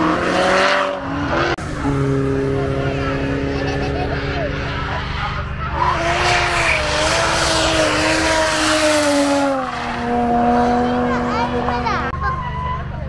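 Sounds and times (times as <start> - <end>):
car engine at high revs: 0.0 - 12.2
tyres squealing: 4.6 - 10.1.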